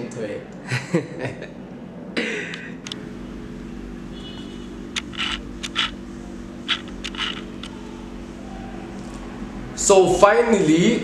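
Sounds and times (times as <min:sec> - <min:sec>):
steady low hum: 0:00.4 - 0:11.0
scratchy clicks and rustles: 0:04.9 - 0:06.0, 0:06.6 - 0:07.8.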